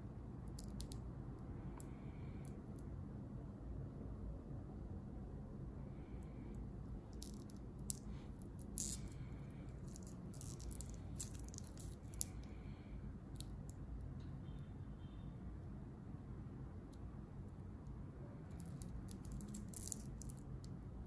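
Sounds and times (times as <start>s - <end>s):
low room hum: 0.0s - 21.0s
watch bracelet clinking: 7.1s - 12.5s, 18.5s - 20.4s.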